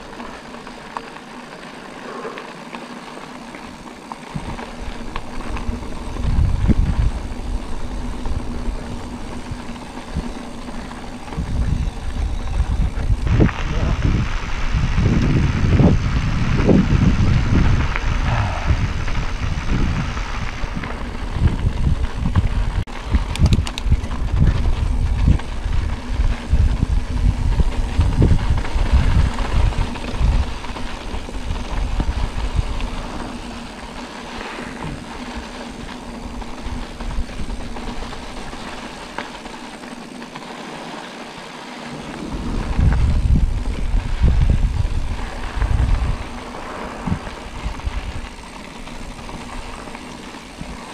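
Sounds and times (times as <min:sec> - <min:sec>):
bicycle rattling on dirt track: 0:00.0 - 0:50.9
wind buffeting microphone: 0:04.2 - 0:40.0, 0:41.7 - 0:50.9.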